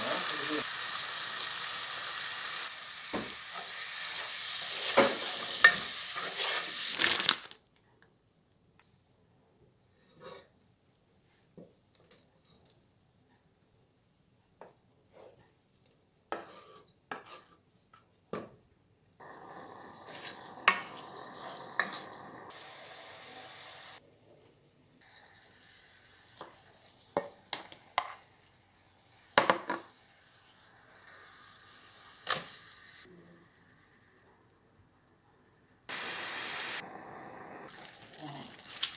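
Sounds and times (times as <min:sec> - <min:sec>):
onions sizzling in oil: 0:00.0 - 0:07.3, 0:19.2 - 0:24.0, 0:25.0 - 0:34.2, 0:35.9 - 0:38.9
wooden spoon scraping pot: 0:16.3 - 0:17.7.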